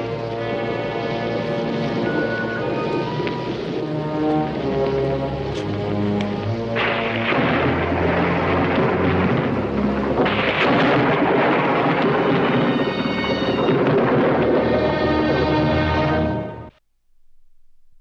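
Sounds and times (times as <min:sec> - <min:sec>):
dramatic orchestral music: 0:00.0 - 0:16.7
rolling thunder: 0:06.4 - 0:16.3.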